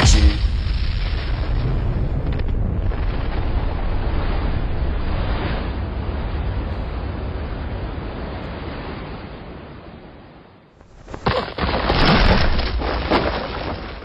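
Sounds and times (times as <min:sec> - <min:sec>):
rock breaking crash: 0:00.0 - 0:05.4, 0:11.0 - 0:14.0
crackling debris: 0:00.0 - 0:09.4, 0:10.8 - 0:14.0
rushing wind-like noise: 0:00.0 - 0:11.2.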